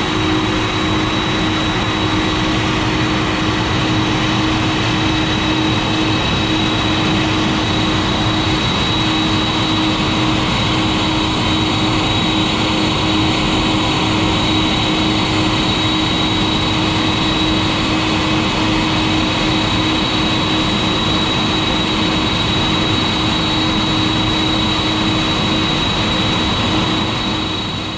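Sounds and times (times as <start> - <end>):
jet engines idling: 0.0 - 27.9.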